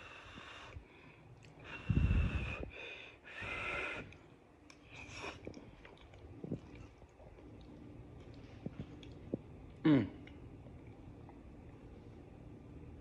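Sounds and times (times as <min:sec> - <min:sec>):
heavy nose breathing: 0:00.0 - 0:04.2.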